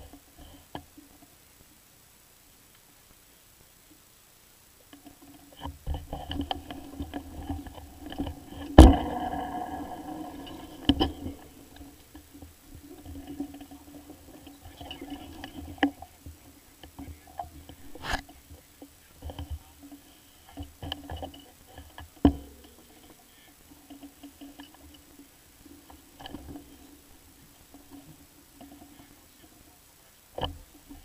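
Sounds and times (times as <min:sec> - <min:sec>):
faint steady hum: 0:00.0 - 0:31.0
sharp knocks: 0:08.7 - 0:11.9.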